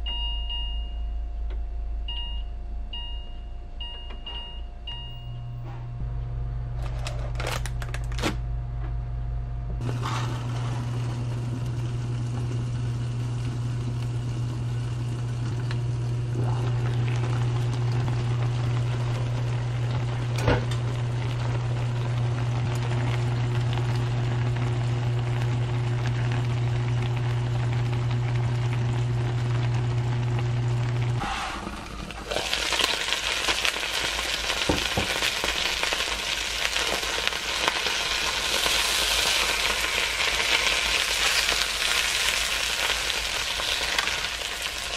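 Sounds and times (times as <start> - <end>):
cooking appliance humming: 0.0 - 44.9
fish sizzling in oil: 32.3 - 44.9.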